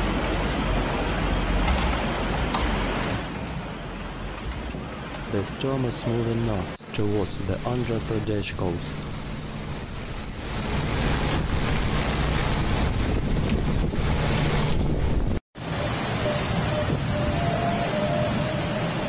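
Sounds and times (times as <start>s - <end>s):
heavy rain: 0.0s - 19.0s
wind buffeting microphone: 9.0s - 15.4s.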